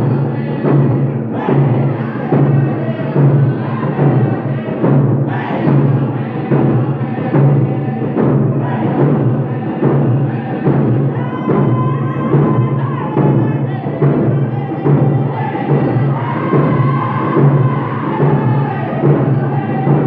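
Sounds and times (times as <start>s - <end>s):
hand drums beating: 0.0s - 20.0s
singers holding high notes: 10.7s - 20.0s.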